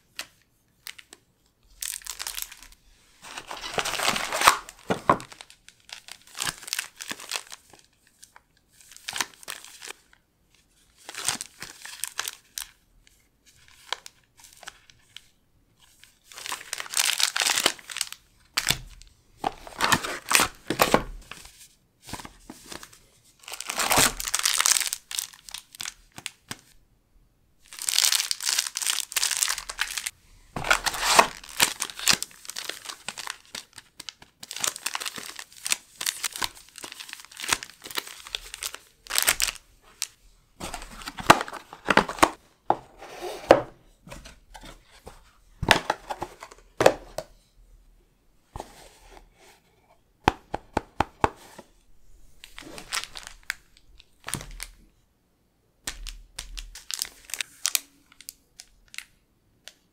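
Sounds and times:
plastic wrapper crinkling: 0:00.2 - 0:10.0, 0:16.3 - 0:18.8, 0:23.4 - 0:26.4, 0:27.7 - 0:42.4, 0:52.4 - 0:54.8, 0:55.9 - 0:59.1
foil packs crinkling: 0:01.7 - 0:07.9, 0:16.3 - 0:18.8, 0:23.4 - 0:26.3, 0:27.7 - 0:42.4, 0:52.4 - 0:54.7, 0:55.9 - 0:59.0.

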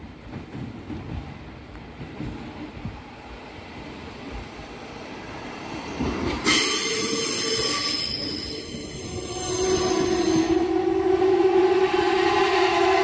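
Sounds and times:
electric train rolling: 0:00.2 - 0:13.0
high-pitched squeal of brakes: 0:06.4 - 0:10.6.

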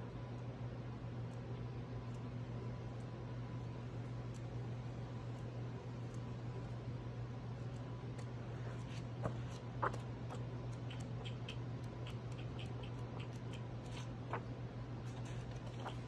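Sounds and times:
steady low hum: 0:00.0 - 0:16.0
book pages flipping: 0:08.1 - 0:16.0.

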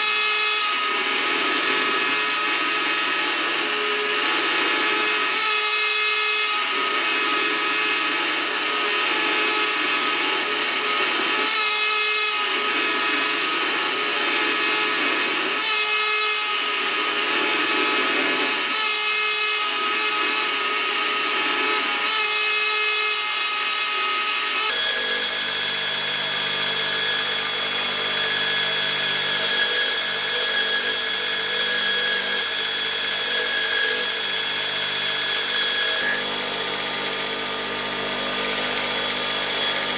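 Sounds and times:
power tool running: 0:00.0 - 0:39.9
belt grinder humming: 0:24.7 - 0:39.9.

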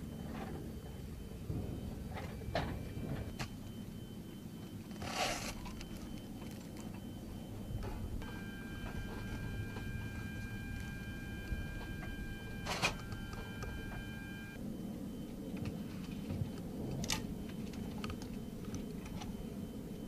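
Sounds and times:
steady high-pitched whine: 0:00.0 - 0:20.0
diesel engines idling: 0:05.5 - 0:14.6.

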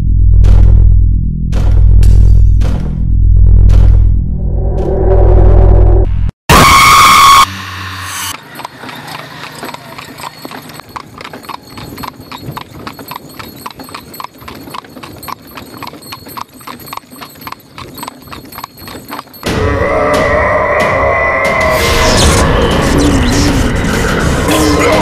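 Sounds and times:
horse hooves trotting on dirt: 0:08.4 - 0:19.5.

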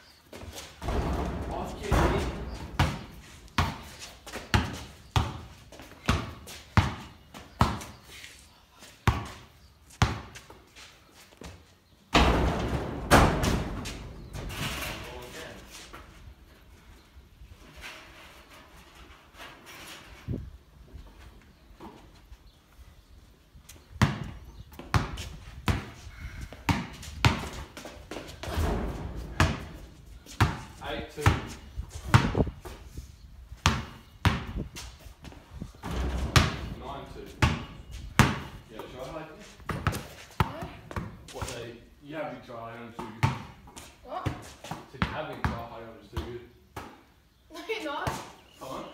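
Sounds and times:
basketball bouncing echoing: 0:00.8 - 0:07.9, 0:28.6 - 0:29.8, 0:35.8 - 0:36.7.

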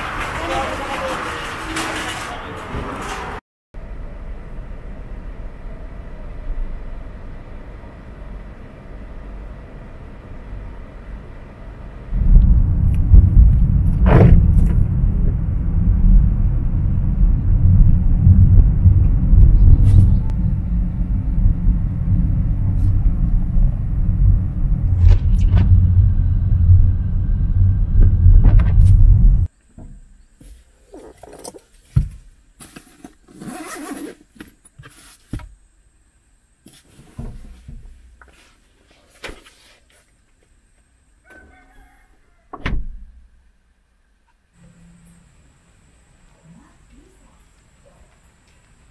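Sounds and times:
car cabin road and engine rumble: 0:02.3 - 0:29.5.

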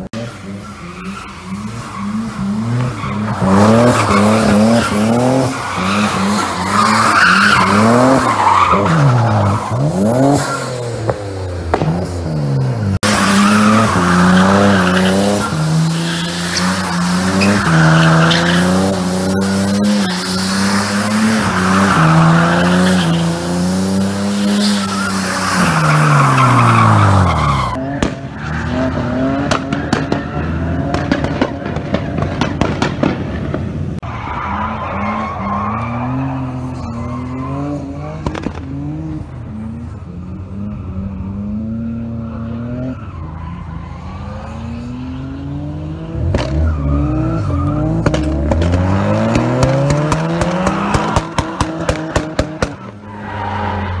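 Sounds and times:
tire squeal: 0:00.0 - 0:32.7, 0:34.0 - 0:54.0
car engine revving: 0:00.0 - 0:54.0
exhaust pops and bangs: 0:11.0 - 0:12.2, 0:28.0 - 0:28.4, 0:29.4 - 0:33.9, 0:38.2 - 0:38.7, 0:47.9 - 0:53.0.

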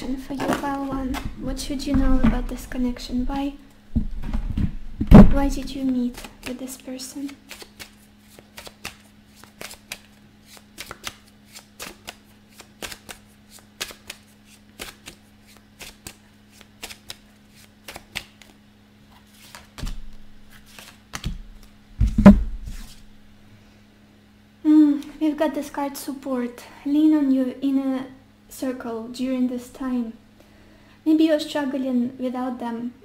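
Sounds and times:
cards being shuffled: 0:00.3 - 0:01.4, 0:05.1 - 0:23.0.

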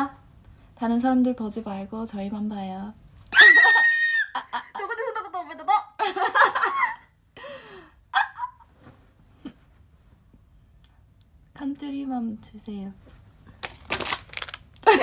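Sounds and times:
women laughing: 0:03.4 - 0:07.2, 0:08.1 - 0:08.7.

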